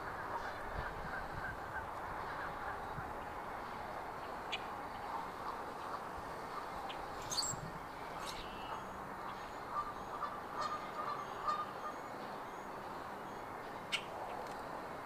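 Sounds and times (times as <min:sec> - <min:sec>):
faint high bird chirps: 0:07.2 - 0:07.6
geese honking: 0:09.6 - 0:12.0.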